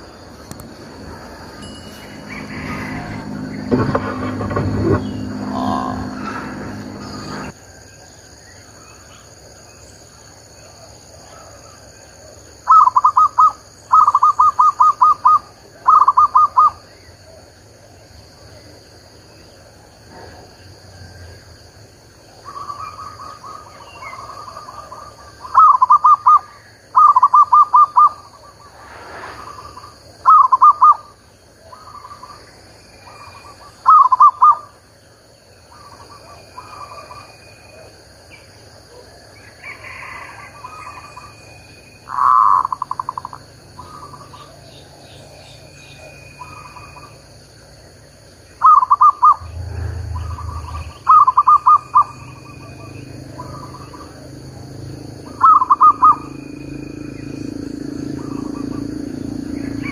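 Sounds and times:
high insect drone: 0.0 - 59.9
dove cooing: 1.1 - 7.5, 29.7 - 31.0, 33.1 - 34.7, 42.1 - 44.6, 48.6 - 54.3, 55.3 - 56.8.

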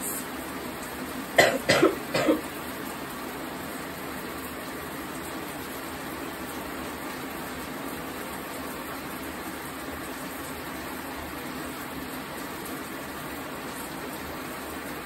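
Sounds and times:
woman coughing: 1.4 - 2.5.

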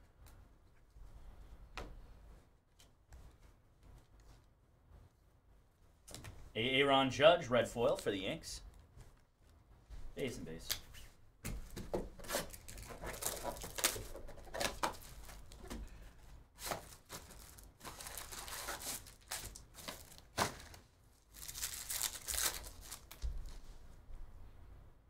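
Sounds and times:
wrapping crinkling and tearing: 12.1 - 15.8, 16.6 - 23.6.

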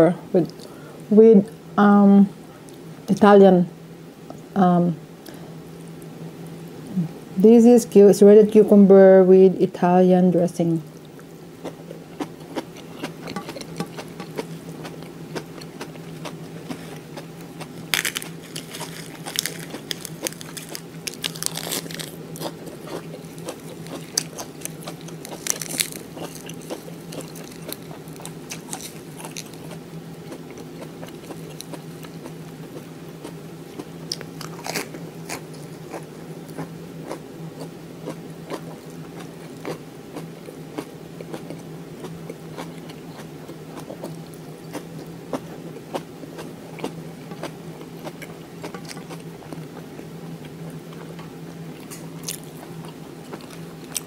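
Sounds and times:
steady low hum: 0.0 - 54.0
crunchy lettuce chewing: 10.8 - 54.0.

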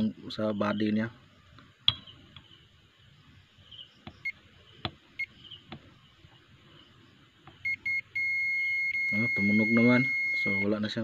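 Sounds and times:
multimeter beeping: 7.6 - 10.9.

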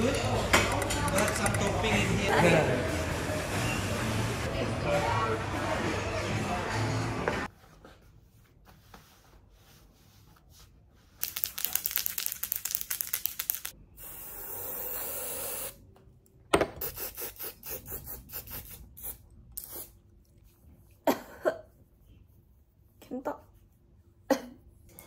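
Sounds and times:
spray can rattling: 11.2 - 13.8.

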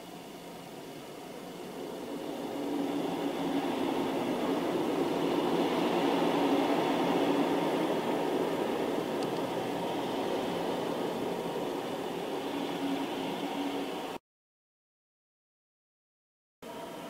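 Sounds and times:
freight train rolling past: 0.0 - 14.2.

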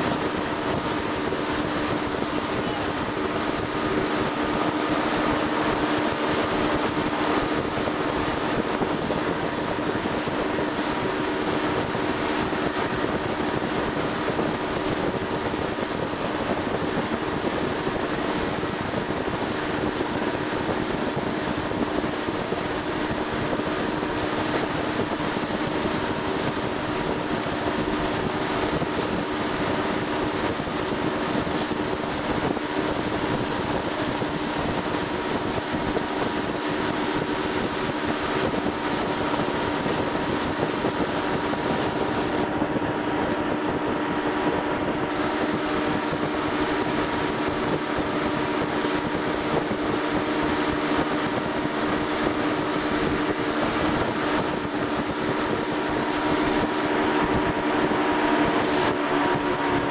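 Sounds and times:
boat motor humming: 0.0 - 59.9
wind buffeting microphone: 0.0 - 59.9.

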